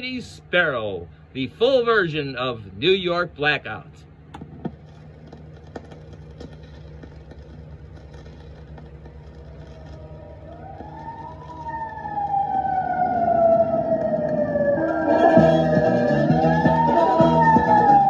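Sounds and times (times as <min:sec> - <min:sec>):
low steady hum: 0:00.0 - 0:18.0
siren rising and falling: 0:09.5 - 0:18.0.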